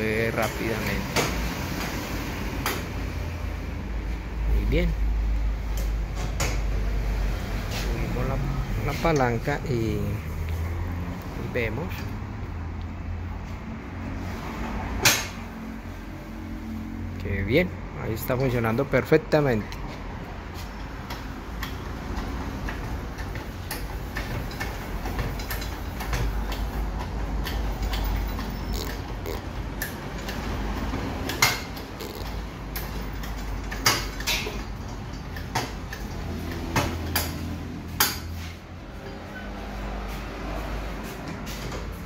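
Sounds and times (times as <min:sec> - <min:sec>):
sharp metal knocks: 0:15.0 - 0:15.5
metal clicks and clanks of jack lever: 0:21.1 - 0:38.4.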